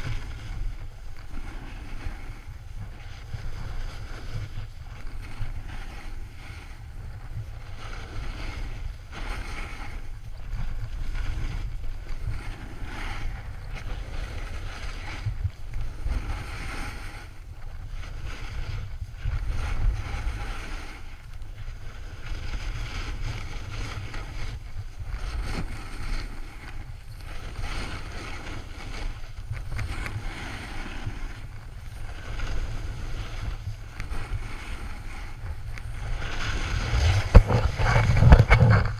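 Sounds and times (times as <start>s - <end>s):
wind buffeting microphone: 0.0s - 38.9s
snow hissing under skis: 21.7s - 38.6s.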